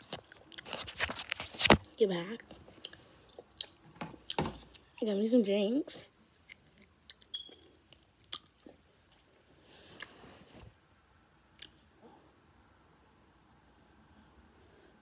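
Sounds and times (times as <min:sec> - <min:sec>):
faint chewing: 0:00.0 - 0:01.7, 0:02.4 - 0:05.0, 0:06.3 - 0:10.2.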